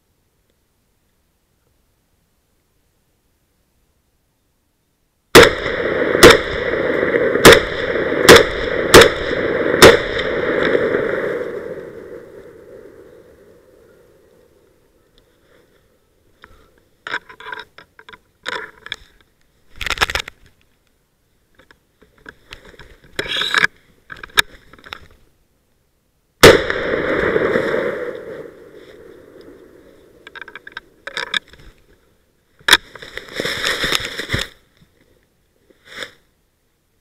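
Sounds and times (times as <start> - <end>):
gunshot with long echo: 5.3 - 13.0, 26.4 - 29.4
rustling in dry leaves: 32.8 - 35.2.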